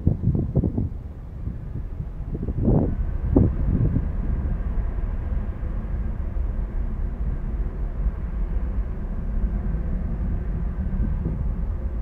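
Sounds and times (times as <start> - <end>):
distant jet engines rumbling: 0.4 - 12.0.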